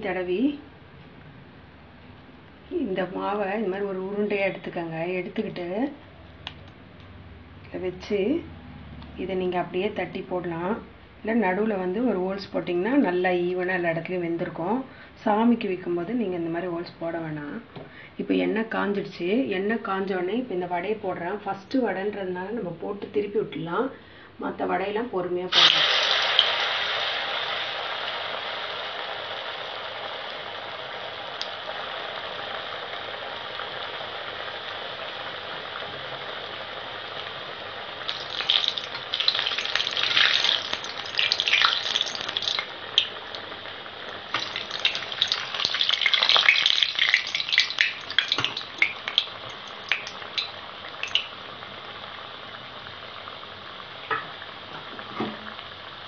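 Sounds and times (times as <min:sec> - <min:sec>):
fritter sizzling in hot oil: 0:25.5 - 0:56.0
oil crackling and spattering: 0:38.0 - 0:51.5.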